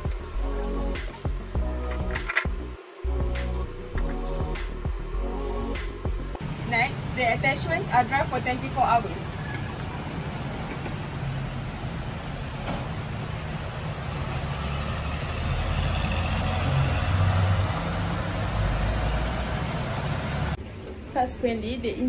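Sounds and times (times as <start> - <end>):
road traffic rumble: 0.0 - 20.6
heavy vehicle: 7.9 - 20.6.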